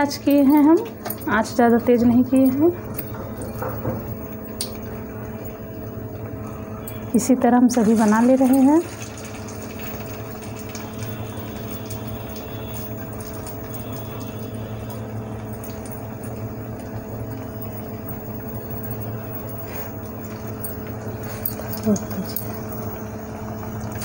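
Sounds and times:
steady two-tone hum: 0.0s - 24.0s
patties sizzling in oil: 7.2s - 18.4s.

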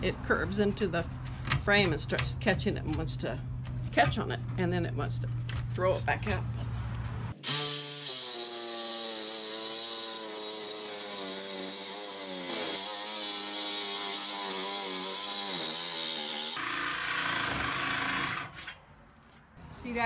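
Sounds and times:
saw blade grinding: 7.4s - 18.8s.

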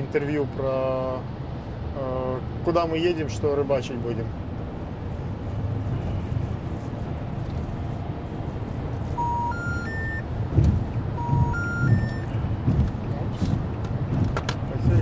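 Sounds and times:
road and engine noise inside car: 0.0s - 15.0s
low thumps: 9.2s - 15.0s.

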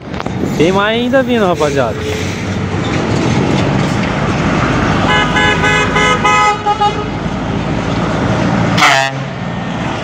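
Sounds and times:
truck engines rumbling: 0.0s - 10.0s
truck horn toots: 5.1s - 7.1s, 8.8s - 9.3s.

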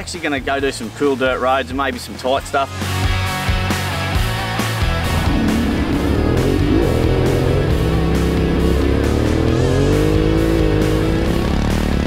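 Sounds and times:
rock music with electric guitar: 2.7s - 12.0s
dirt bike engine running: 4.8s - 12.0s.

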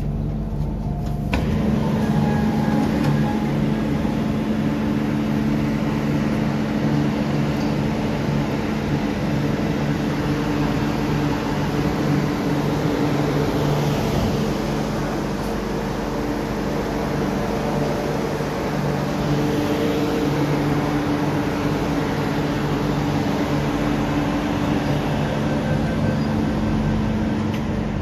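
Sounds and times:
low steady tones: 0.0s - 28.0s
train equipment and ventilation hum: 0.0s - 28.0s.

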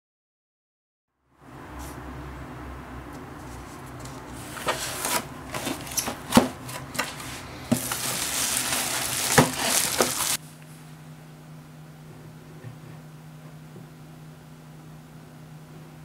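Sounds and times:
bubble wrap crinkling and popping: 5.1s - 10.4s.

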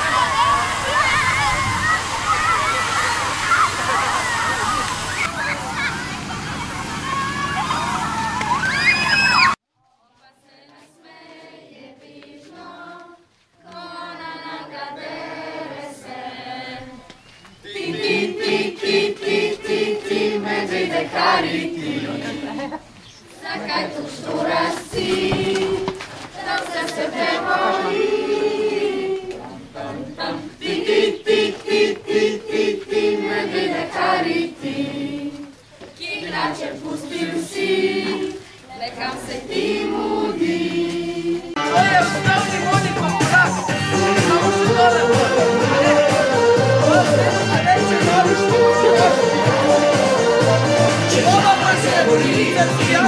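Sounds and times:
children singing together: 10.5s - 22.8s, 23.4s - 41.8s, 42.9s - 53.0s.

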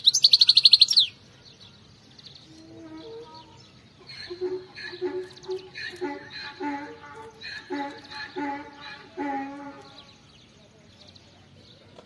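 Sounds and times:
finch trilling and twittering: 0.0s - 1.2s, 2.2s - 10.5s.

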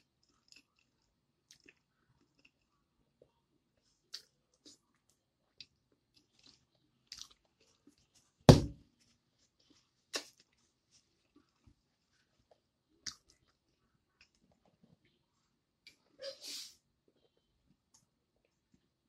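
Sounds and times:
chewing and mouth smacks: 0.1s - 2.8s, 4.1s - 8.2s, 12.4s - 15.2s
loud thump: 8.5s - 8.8s.

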